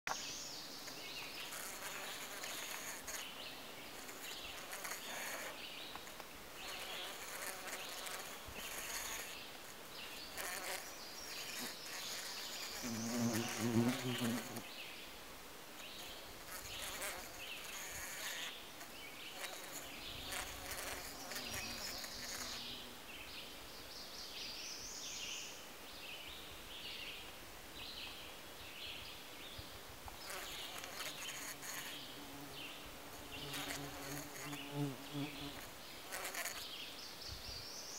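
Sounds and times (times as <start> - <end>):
bee buzzing inside a flower: 1.0 - 14.8, 15.8 - 23.2, 30.2 - 36.8.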